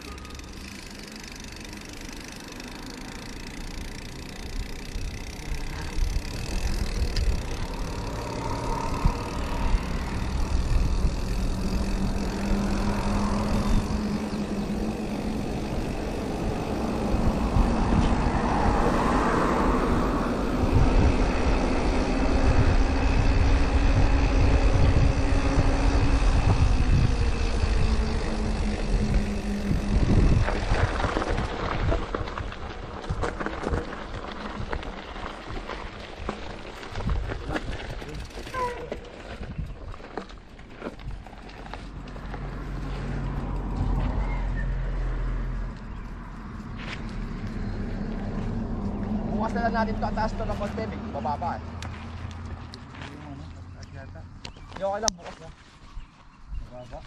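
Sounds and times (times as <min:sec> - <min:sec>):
bike tyre noise: 0:00.0 - 0:57.0
wind rumble on microphone: 0:05.8 - 0:50.9.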